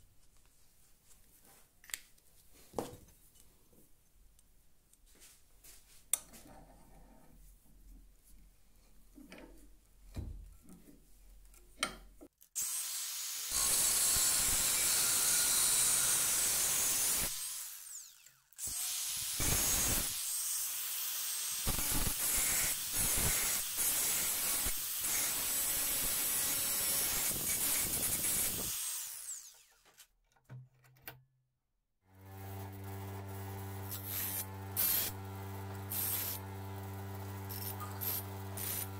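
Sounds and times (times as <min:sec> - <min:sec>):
angle grinder on steel: 0:12.6 - 0:29.8, 0:32.2 - 0:38.9.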